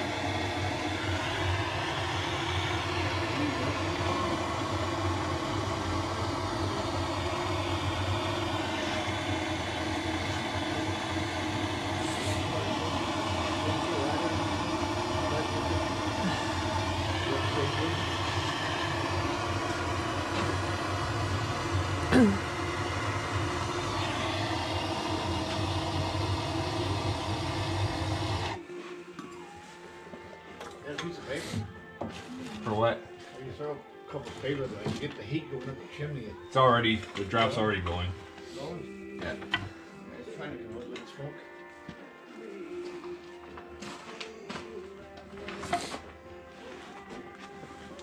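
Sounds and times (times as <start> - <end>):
propane torch burning: 0.0 - 28.6.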